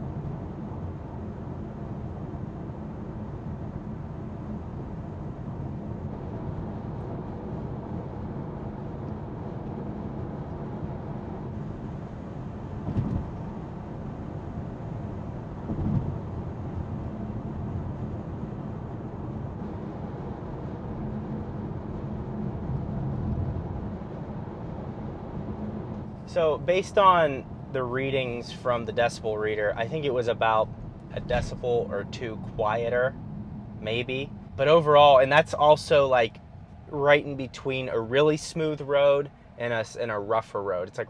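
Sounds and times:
tyre and wind rumble in car: 0:00.0 - 0:41.0
car bumps: 0:12.8 - 0:13.4, 0:15.6 - 0:16.2.

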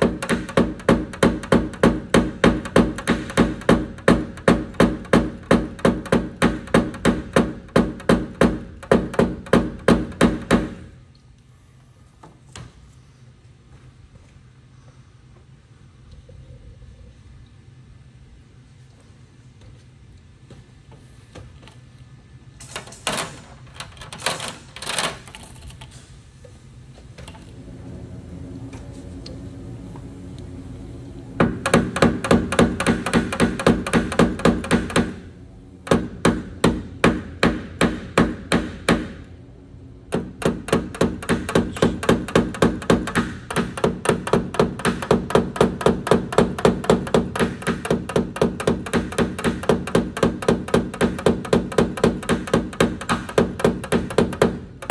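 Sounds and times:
mallet tapping metal punch: 0:40.1 - 0:54.9.

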